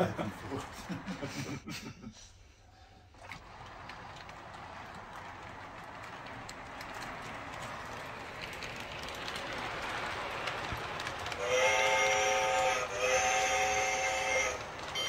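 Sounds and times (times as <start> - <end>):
toy train running on track: 0.0 - 1.6, 3.2 - 15.0
toy train horn blasts: 11.4 - 15.0.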